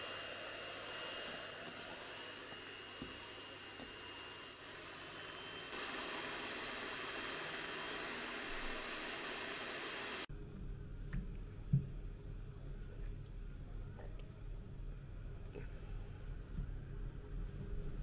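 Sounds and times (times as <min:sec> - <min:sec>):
electric hand mixer whisking: 0:00.0 - 0:10.3.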